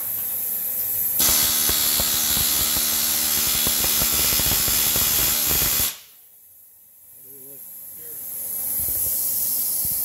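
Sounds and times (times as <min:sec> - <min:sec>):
high hiss: 0:00.0 - 0:10.0
pneumatic rivet gun hammering: 0:01.2 - 0:06.1.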